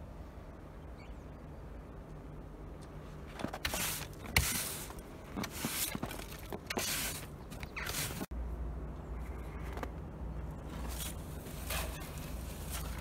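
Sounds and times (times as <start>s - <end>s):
snow brush swishing: 3.7s - 6.0s.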